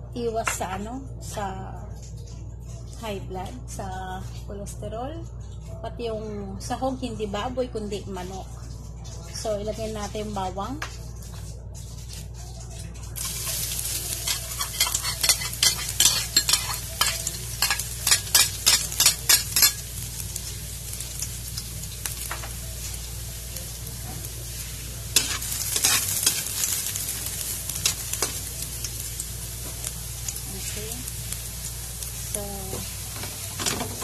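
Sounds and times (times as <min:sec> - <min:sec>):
utensil scraping a wok: 0:13.2 - 0:21.1, 0:23.9 - 0:29.8
garlic sizzling in oil: 0:13.2 - 0:34.0.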